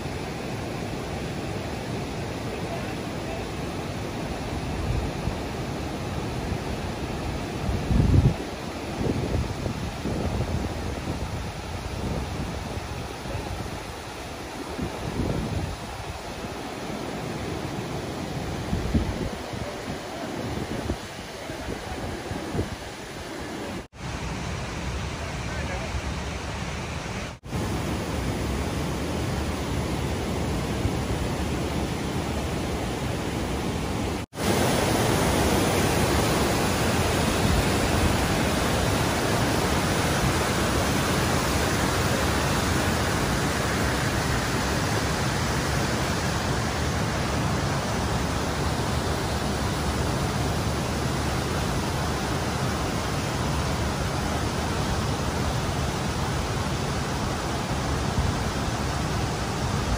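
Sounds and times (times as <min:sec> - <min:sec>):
rush of falling water: 0:00.0 - 0:59.9.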